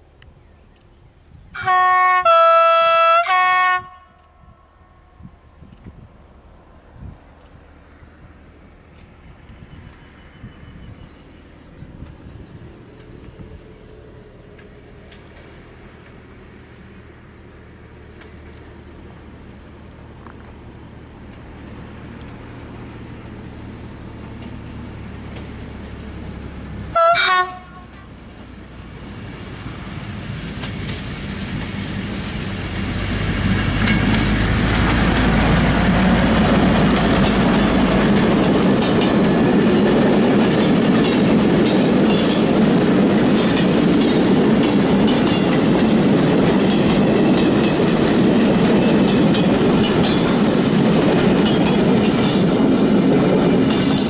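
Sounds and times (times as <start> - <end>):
diesel locomotive engine: 0.0 - 54.0
locomotive horn blast: 1.6 - 4.5, 26.9 - 28.2
wheels clattering on rails: 8.8 - 16.6, 18.0 - 26.8, 30.0 - 54.0.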